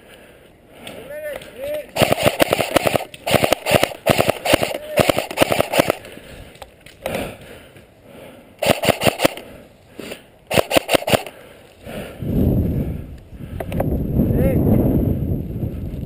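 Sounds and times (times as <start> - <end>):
airsoft rifle firing bursts: 2.0 - 6.1, 8.6 - 9.5, 10.5 - 11.4.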